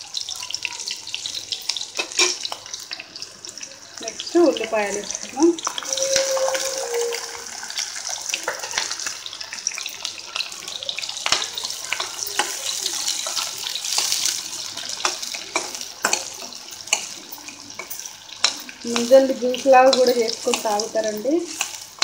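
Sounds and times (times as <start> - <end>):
onions sizzling in hot oil: 0.0 - 22.0.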